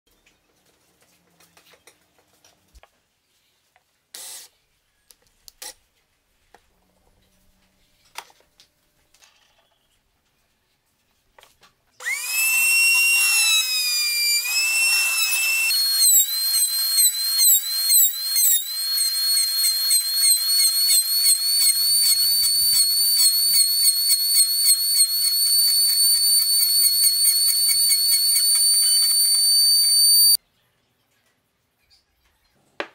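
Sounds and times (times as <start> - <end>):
wood router whining: 12.0 - 30.4.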